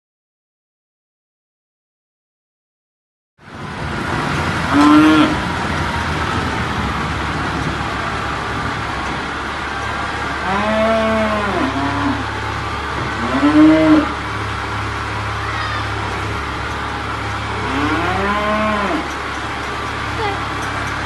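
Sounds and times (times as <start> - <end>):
tractor engine running: 3.4 - 21.0
cattle mooing: 4.7 - 5.5, 10.3 - 14.6, 15.2 - 16.4, 17.4 - 19.3.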